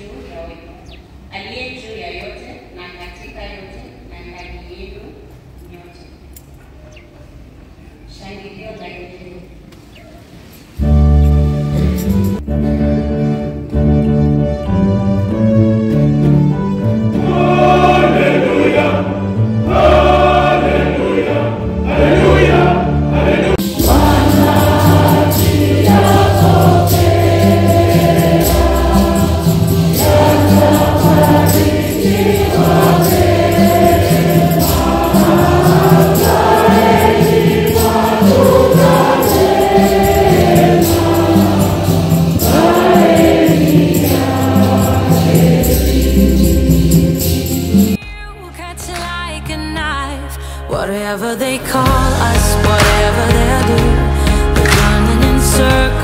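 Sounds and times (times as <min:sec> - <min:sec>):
song with singing voices: 0:17.1 - 0:56.0.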